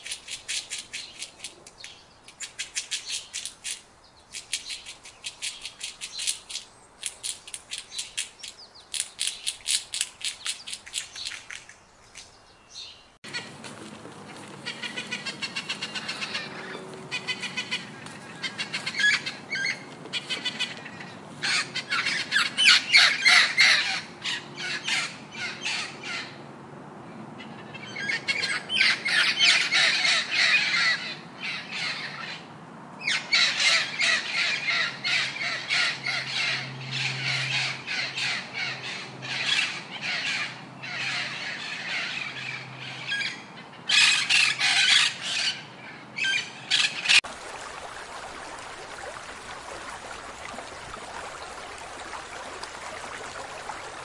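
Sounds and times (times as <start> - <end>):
macaws squawking: 13.3 - 26.4, 27.4 - 47.2.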